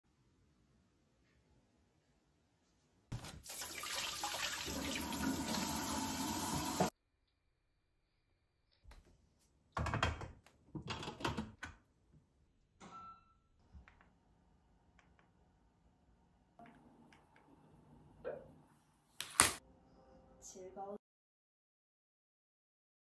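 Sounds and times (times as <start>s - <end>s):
running water from tap: 3.4s - 6.9s.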